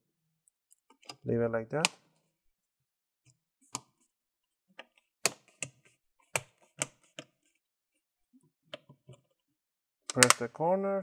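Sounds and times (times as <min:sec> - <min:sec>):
plastic laptop bezel clicking: 0:10.1 - 0:10.4.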